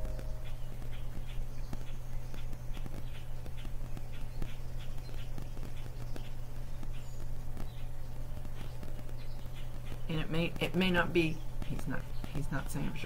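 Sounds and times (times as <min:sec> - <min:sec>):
low electrical hum: 0:00.0 - 0:13.0
static crackles and clicks: 0:00.0 - 0:13.0.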